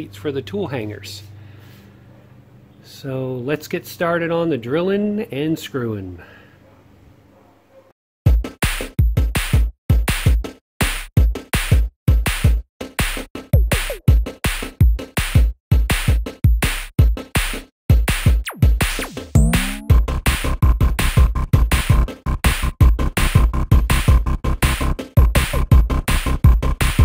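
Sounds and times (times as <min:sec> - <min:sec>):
electronic music with bass drum beat: 0:11.3 - 0:16.6, 0:18.2 - 0:27.0.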